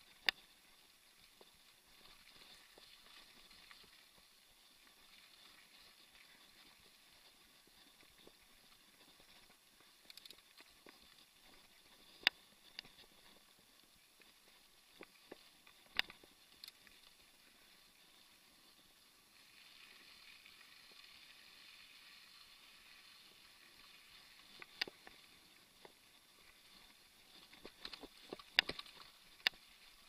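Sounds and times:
faint steady hiss: 0.0 - 30.0
bike clicks and knocks over bumps: 7.2 - 13.4, 27.3 - 29.7.

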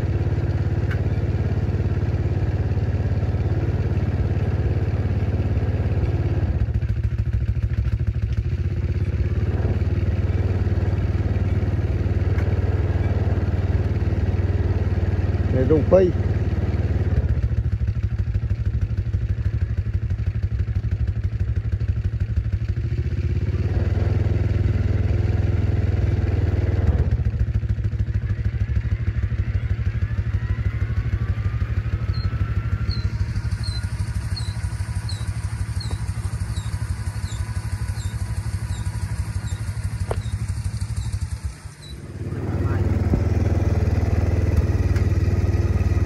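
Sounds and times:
small engine running: 0.0 - 46.0
regular high squeak: 32.1 - 42.1.

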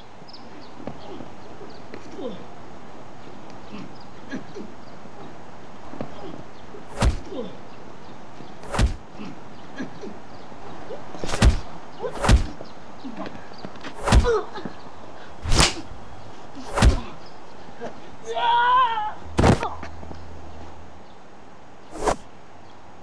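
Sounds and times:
whip-like fight smacks: 6.9 - 7.3, 8.6 - 9.0, 11.2 - 12.6, 14.0 - 14.4, 15.4 - 15.9, 16.6 - 17.1, 21.9 - 22.2.

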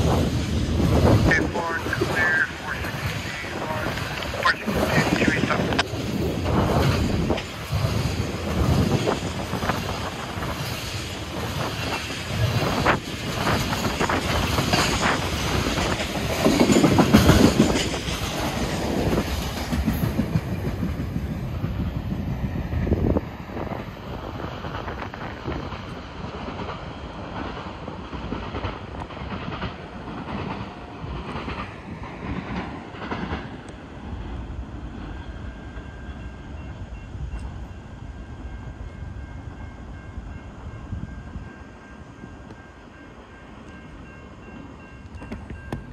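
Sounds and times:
train rumble: 0.0 - 45.9
train wheels clacking over rail joints: 2.8 - 21.8, 24.4 - 33.8.

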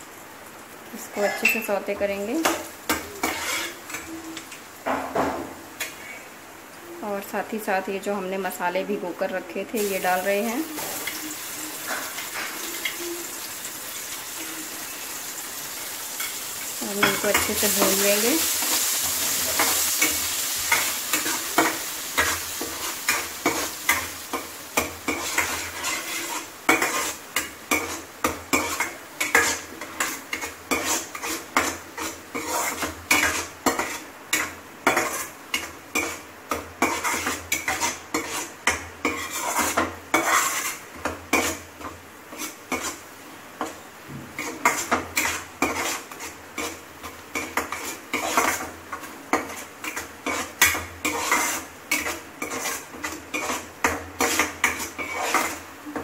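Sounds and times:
spices sizzling in hot oil: 0.0 - 56.0
metal spoon scraping pan: 1.1 - 4.2, 5.8 - 6.3, 16.2 - 43.0, 44.4 - 55.6.

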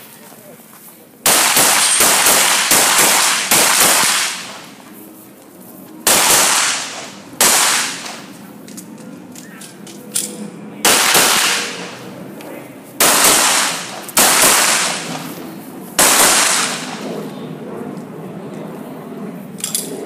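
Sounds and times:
handgun shots: 1.3 - 4.6, 6.1 - 8.2, 10.9 - 11.8, 13.0 - 15.2, 16.0 - 16.9.

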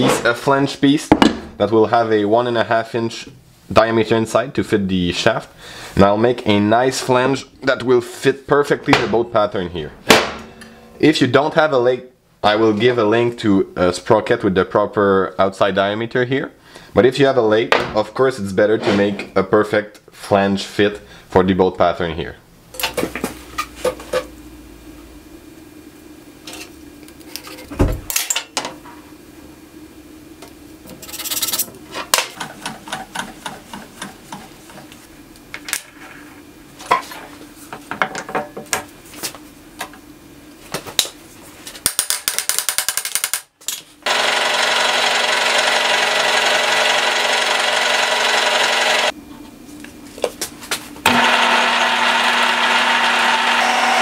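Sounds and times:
drill press boring steel: 44.0 - 49.1, 51.1 - 54.0.

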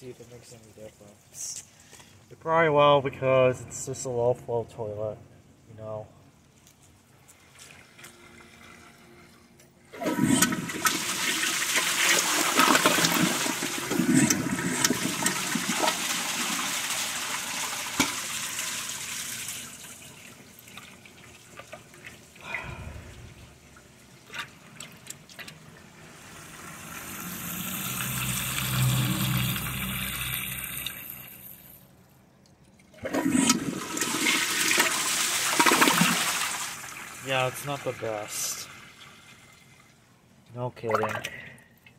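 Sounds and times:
water splashing in toilet bowl: 9.9 - 31.4, 32.9 - 37.3, 40.8 - 41.4
toilet flushing: 9.9 - 31.7, 33.0 - 40.0
water rushing: 25.8 - 31.4.

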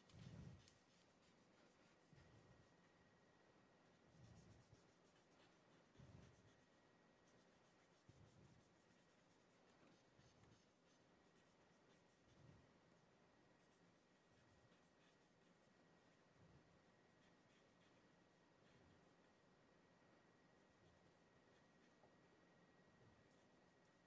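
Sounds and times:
chalk scratching on blackboard: 0.0 - 2.5, 3.9 - 12.5, 13.6 - 16.4, 17.1 - 19.4.

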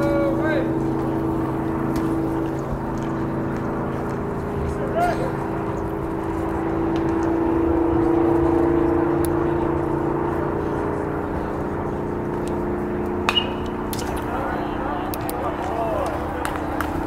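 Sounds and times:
machine drone: 0.0 - 17.0
baseball smacking into mitt: 13.2 - 14.3.

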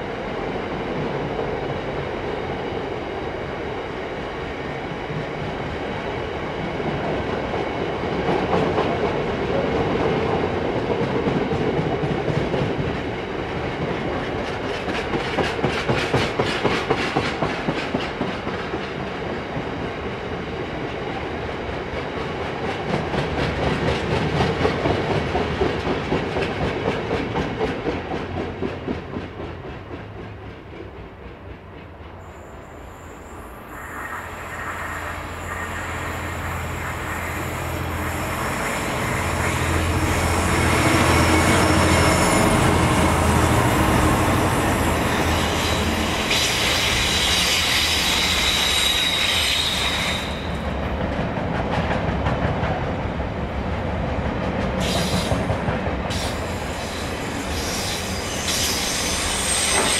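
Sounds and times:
train wheels clickety-clack: 5.0 - 32.4, 38.5 - 59.9
diesel locomotive engine droning: 31.0 - 51.6.

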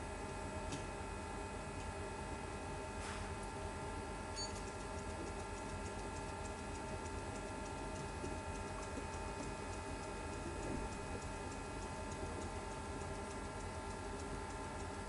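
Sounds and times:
light regular ticks: 4.3 - 15.0.

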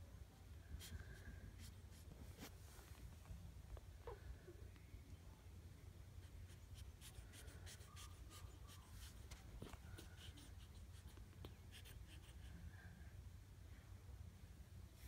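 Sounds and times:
puppies rustling on fabric: 0.8 - 3.8, 7.4 - 11.8.

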